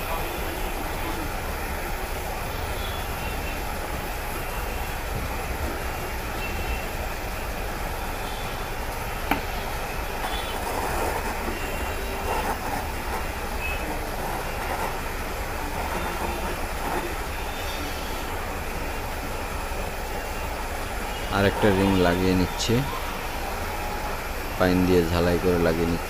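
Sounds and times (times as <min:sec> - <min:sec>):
soldering torch flame hissing: 0:07.1 - 0:19.6.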